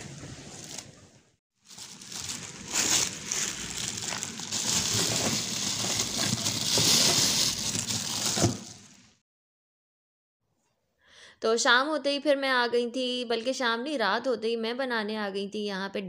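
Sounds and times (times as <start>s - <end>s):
plastic bags rustling: 0.4s - 9.2s.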